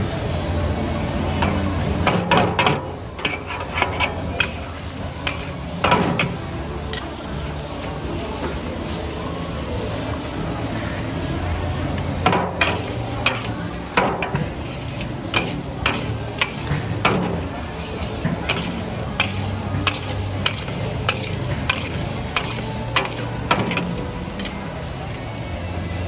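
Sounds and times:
metal utensils clanking in wok: 0:01.4 - 0:07.1, 0:12.0 - 0:24.6.

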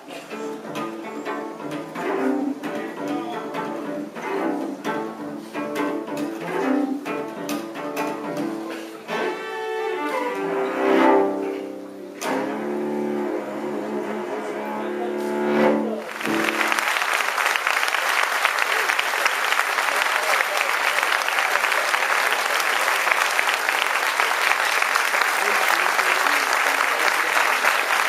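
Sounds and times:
bowed cello: 0:00.0 - 0:16.9.

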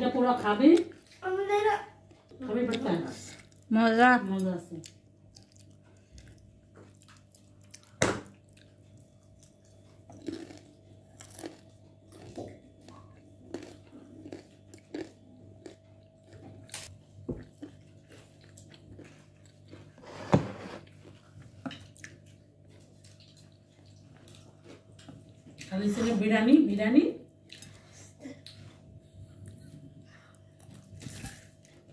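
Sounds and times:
person chewing crunchy food: 0:04.8 - 0:20.0.

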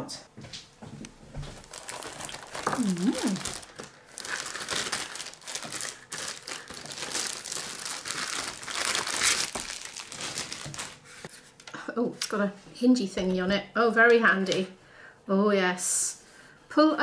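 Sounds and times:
plastic bag crinkling: 0:01.5 - 0:11.3.

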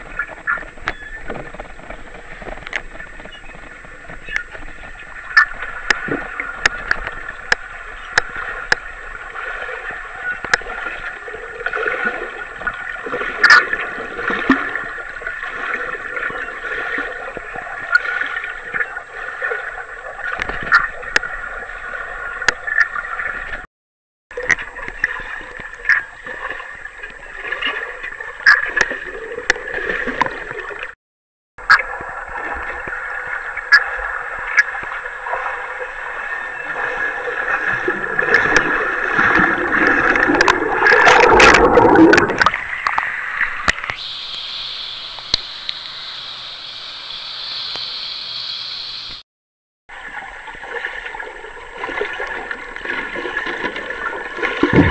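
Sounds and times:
underwater water rush: 0:00.0 - 0:23.7, 0:31.6 - 0:46.8, 0:49.9 - 0:54.9
clicks and pops of bubbles: 0:38.2 - 0:44.0
faint high whine: 0:43.8 - 0:49.2.

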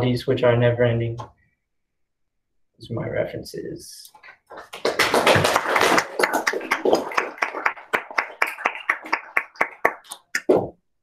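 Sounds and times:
audience applauding: 0:04.4 - 0:10.5.

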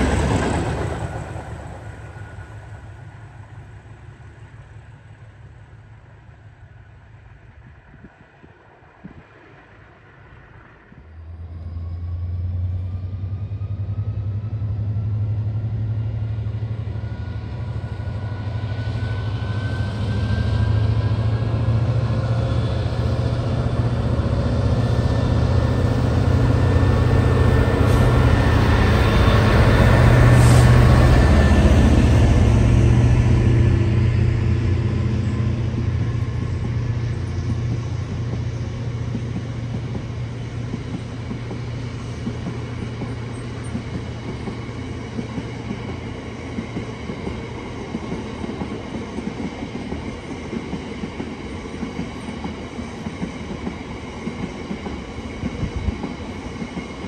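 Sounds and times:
locomotive engine drone: 0:08.6 - 0:50.6.

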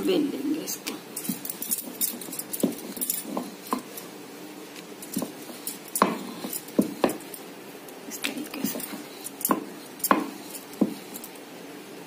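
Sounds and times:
rolling pin knocking on surface: 0:05.2 - 0:07.2, 0:09.5 - 0:11.0.

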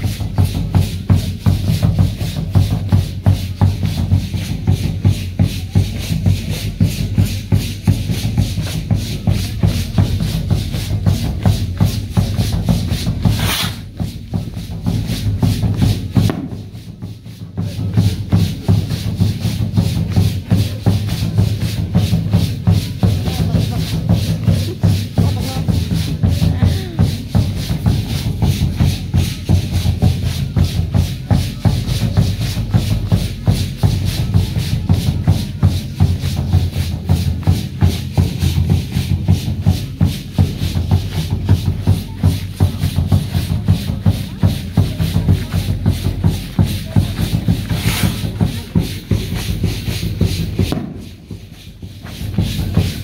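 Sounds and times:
folk dance music: 0:00.0 - 0:53.0
dancers' feet stepping: 0:47.6 - 0:51.3.

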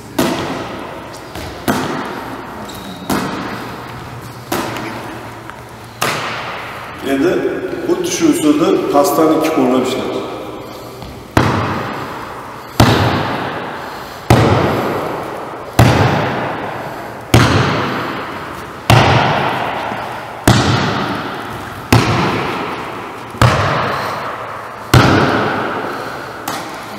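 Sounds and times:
volleyball smacks echoing: 0:00.1 - 0:03.7, 0:04.4 - 0:05.2, 0:06.0 - 0:06.9, 0:11.0 - 0:12.2, 0:12.8 - 0:26.9.

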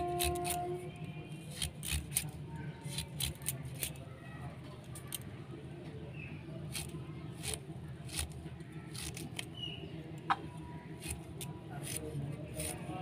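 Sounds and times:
carrot being sliced: 0:00.0 - 0:00.8, 0:01.4 - 0:04.1, 0:06.6 - 0:09.6, 0:10.9 - 0:13.0
low steady hum: 0:00.0 - 0:03.2.

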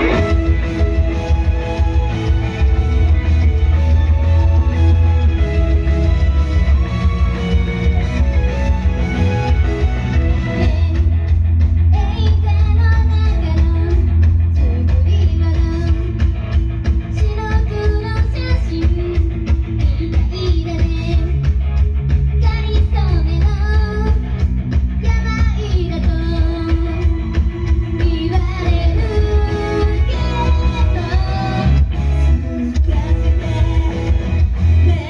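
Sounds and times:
loud rock music with guitar: 0:00.0 - 0:35.0
pounding bass and drum beat: 0:00.0 - 0:35.0
group singing live: 0:28.0 - 0:31.9, 0:32.8 - 0:35.0.

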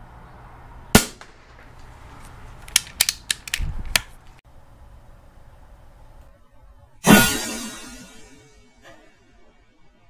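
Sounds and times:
air rifle shot: 0:00.9 - 0:01.8
sharp clicks and knocks: 0:01.2 - 0:04.4.

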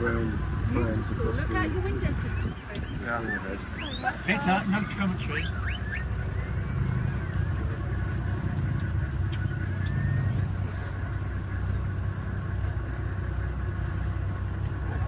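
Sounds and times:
vehicle engine idling: 0:00.0 - 0:15.0.

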